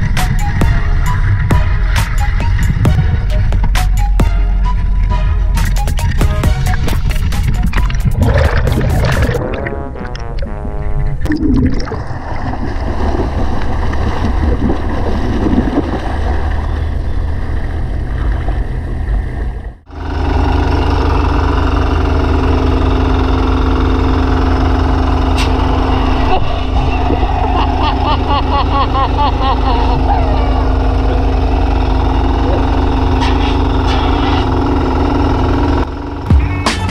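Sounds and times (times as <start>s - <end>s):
engine drone: 0.0s - 36.9s
underwater bubbling and gurgling: 6.7s - 19.8s, 26.1s - 27.9s.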